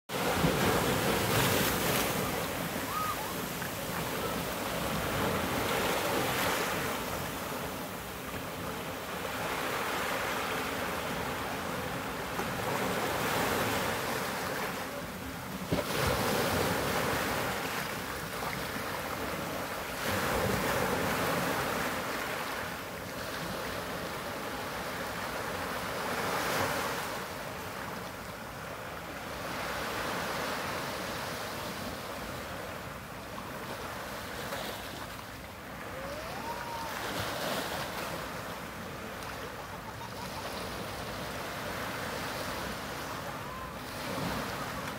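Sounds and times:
waves washing over rocks: 0.1 - 22.5.

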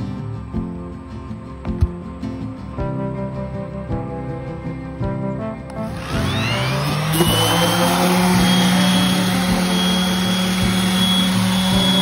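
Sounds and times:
small electric motor running: 5.8 - 12.0.

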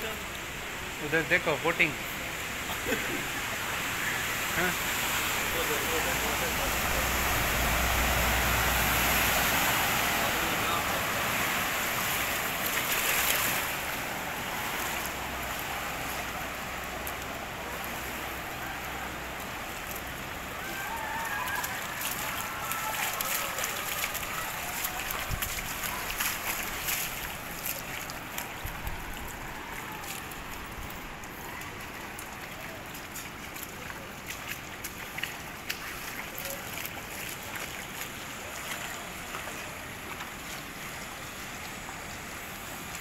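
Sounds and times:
car splashing through floodwater: 0.0 - 43.0
moving water wash: 0.0 - 43.0.

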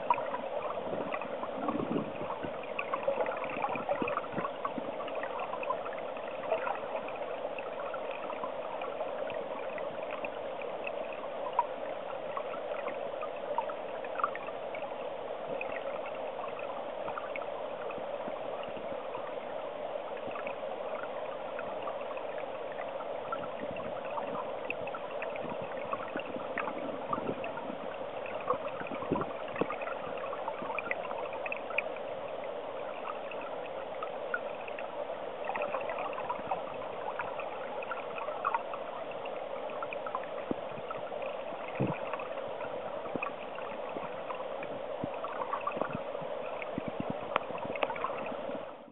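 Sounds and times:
underwater stream rushing: 0.0 - 48.9
small clicks and ticks: 43.0 - 48.4.

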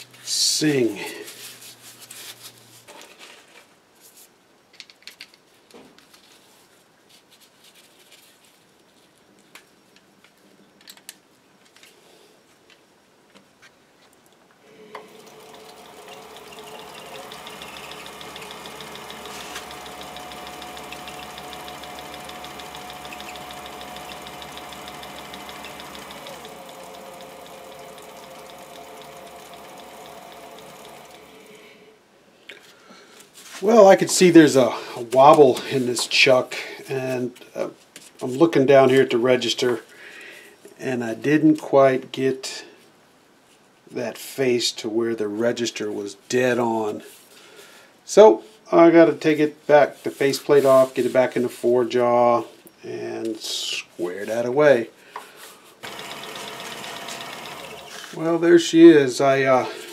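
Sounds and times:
lathe running with fast patter: 15.0 - 31.5, 55.8 - 58.4.

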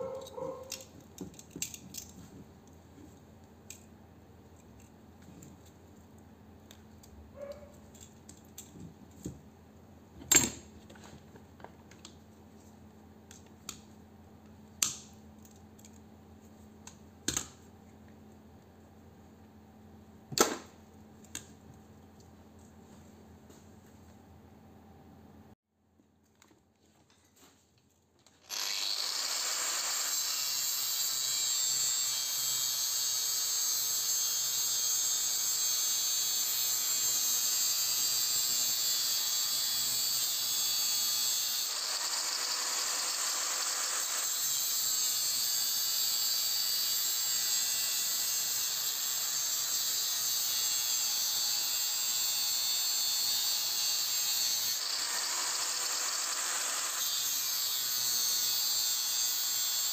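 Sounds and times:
angle grinder running: 28.4 - 59.9
grinder cutting metal windings: 28.4 - 59.9.

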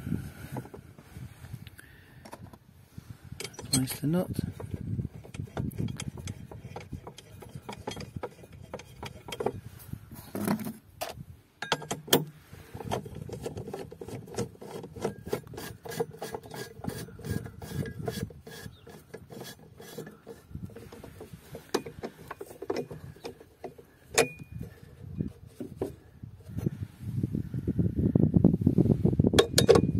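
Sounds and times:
sharp metal knocks: 11.6 - 12.3, 29.4 - 29.9.

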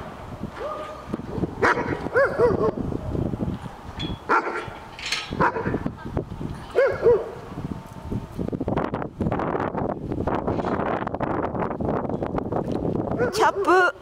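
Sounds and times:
dog barking: 1.6 - 2.8, 4.3 - 4.7, 5.4 - 5.8, 6.8 - 7.4, 13.2 - 13.9.

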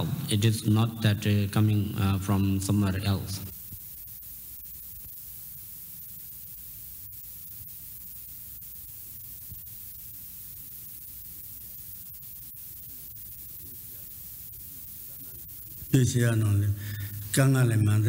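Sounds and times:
steady hiss: 0.0 - 18.0.

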